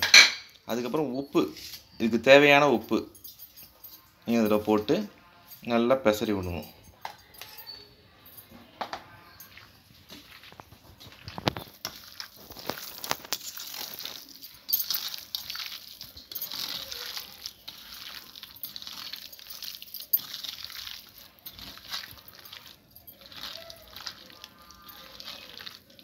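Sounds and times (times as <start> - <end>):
hand squishing chicken in paste: 9.5 - 26.0.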